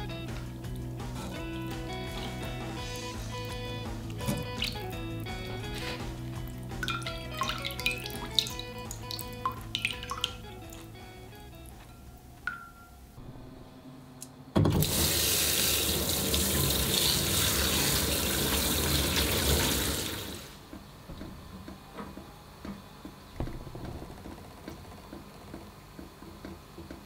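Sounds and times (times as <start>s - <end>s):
tap water running: 0.0s - 11.7s, 14.6s - 20.6s
water splashing into sink: 4.1s - 10.8s, 14.7s - 20.5s.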